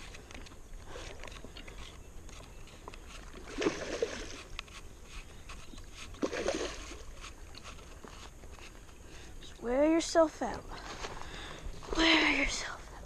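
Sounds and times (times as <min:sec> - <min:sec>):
fish splashing in water: 0:03.3 - 0:04.5, 0:06.1 - 0:07.4.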